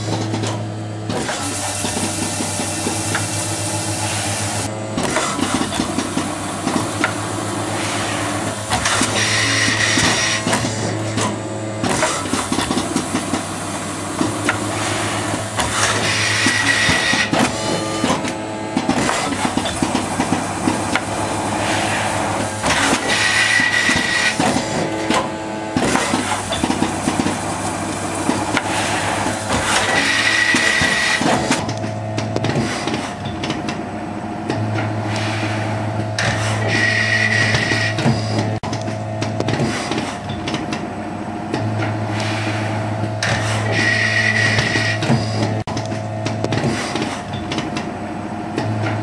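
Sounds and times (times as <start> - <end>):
machine hum: 0.0 - 49.0
machine clicks and knocks: 43.0 - 48.0.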